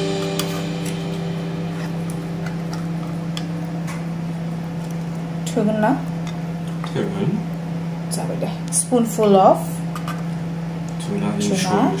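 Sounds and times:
low hum: 0:00.0 - 0:06.6.

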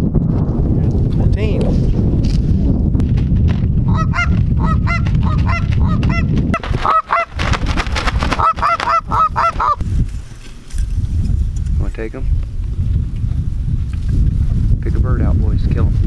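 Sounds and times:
wind rumble on microphone: 0:00.0 - 0:16.0
goose honking and clucking: 0:03.9 - 0:07.4, 0:08.3 - 0:09.8.

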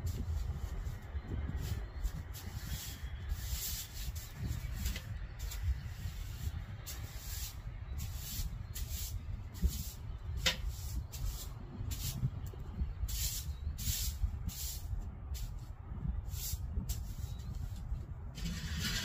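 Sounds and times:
steady low rumble: 0:00.0 - 0:19.0
short hissing bursts: 0:13.1 - 0:15.5.

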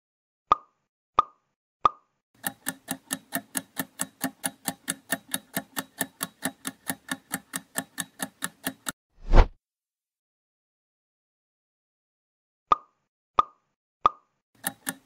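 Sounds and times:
timer ticking: 0:02.4 - 0:09.0, 0:14.6 - 0:15.0.

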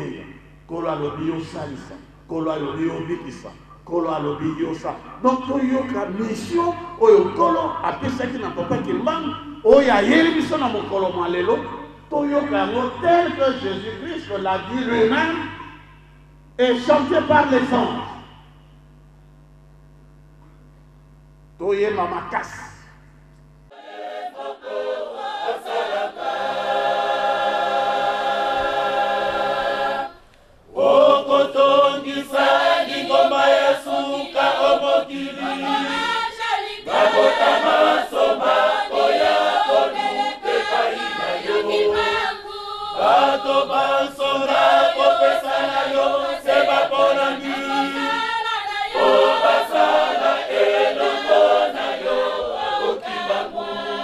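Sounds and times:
choir singing without instruments: 0:23.7 - 0:54.0.

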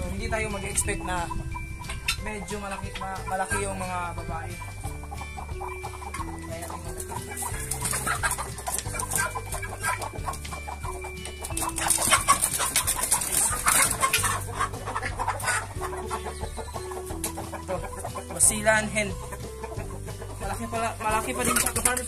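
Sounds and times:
background music: 0:00.0 - 0:22.0
chickens squawking and clucking: 0:00.0 - 0:22.0
scuffling and wing-flapping: 0:04.7 - 0:22.0.

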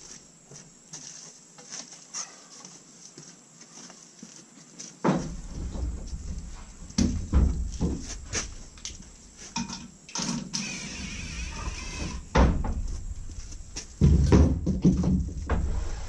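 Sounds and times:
heavy thumps: 0:05.1 - 0:09.7, 0:12.0 - 0:16.0
wooden knocks: 0:14.0 - 0:15.6.

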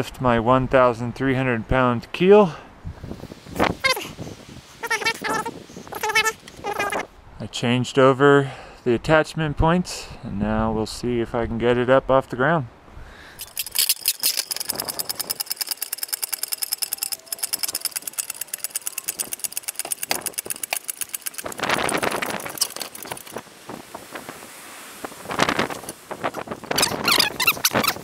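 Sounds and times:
hoist gear clicking: 0:13.4 - 0:23.4.

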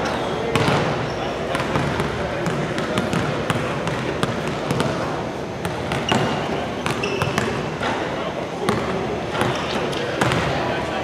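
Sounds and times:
hubbub of voices: 0:00.0 - 0:11.0
basketballs bouncing on wooden floor: 0:00.5 - 0:05.0, 0:05.6 - 0:07.9, 0:08.6 - 0:09.6, 0:10.2 - 0:10.6.

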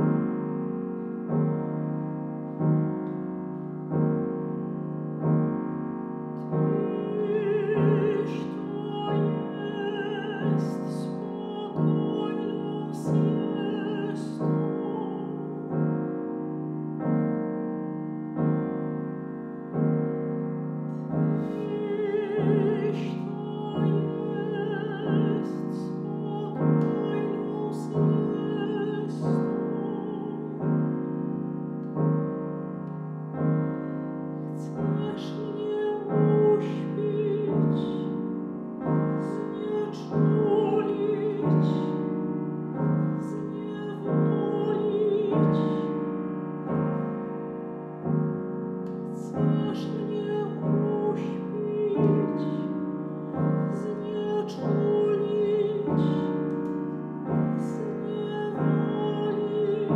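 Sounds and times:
grand piano chords: 0:00.0 - 0:59.9
woman singing classical with vibrato: 0:06.7 - 0:15.9, 0:21.3 - 0:31.4, 0:34.6 - 0:38.4, 0:39.0 - 0:46.4, 0:49.1 - 0:59.9.

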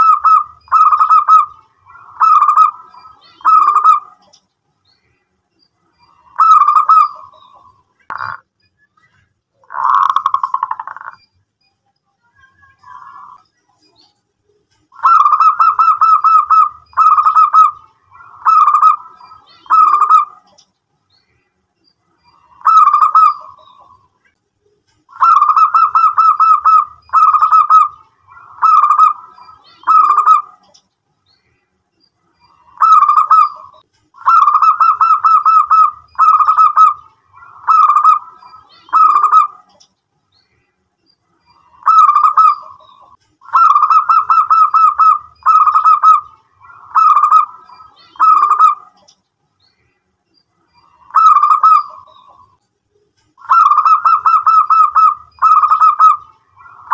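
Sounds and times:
dove cooing: 0:00.0 - 0:04.3, 0:06.0 - 0:08.4, 0:15.0 - 0:20.6, 0:22.4 - 0:24.1, 0:25.1 - 0:30.8, 0:32.6 - 0:39.8, 0:41.6 - 0:49.1, 0:50.9 - 0:52.4, 0:53.4 - 0:56.9.

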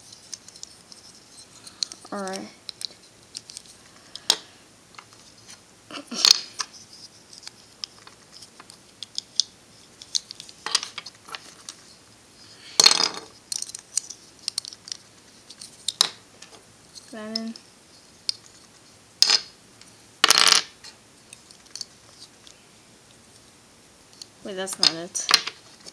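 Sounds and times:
plastic puzzle pieces clicking: 0:00.1 - 0:04.4, 0:06.2 - 0:11.8, 0:12.8 - 0:16.2, 0:21.3 - 0:22.5.

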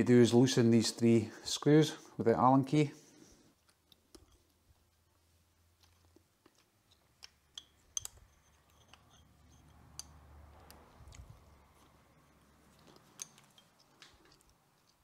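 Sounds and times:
allen key clicking on metal screws: 0:05.8 - 0:15.0.

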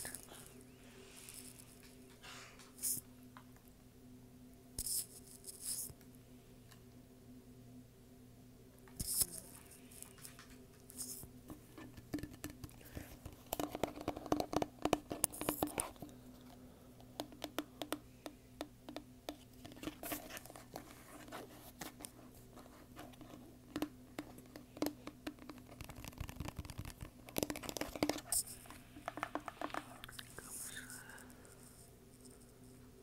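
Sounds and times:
fingers tapping plastic bottle: 0:11.8 - 0:16.1, 0:17.0 - 0:20.1, 0:23.0 - 0:28.4, 0:29.0 - 0:30.2.

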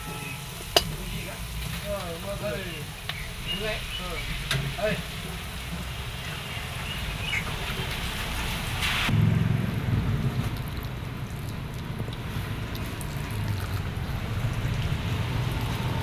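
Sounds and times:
food sizzling in oil: 0:00.0 - 0:09.1.

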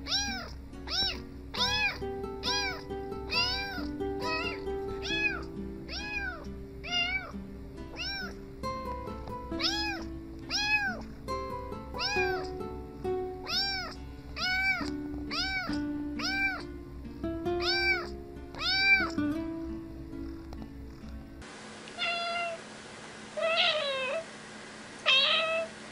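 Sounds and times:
kitten meowing: 0:00.0 - 0:07.3, 0:07.9 - 0:08.4, 0:09.6 - 0:11.1, 0:12.0 - 0:12.6, 0:13.4 - 0:16.7, 0:17.6 - 0:19.2, 0:22.0 - 0:22.6, 0:23.4 - 0:24.2, 0:25.0 - 0:25.7
background music of held notes: 0:00.0 - 0:21.4.

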